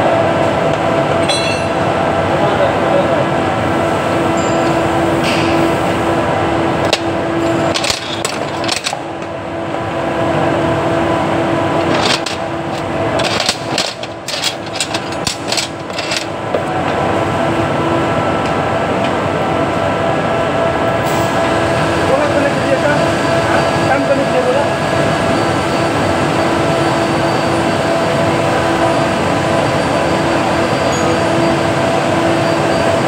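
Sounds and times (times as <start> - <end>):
workshop machinery humming: 0.0 - 33.0
hand tools clinking on metal: 1.2 - 1.8, 11.8 - 16.3.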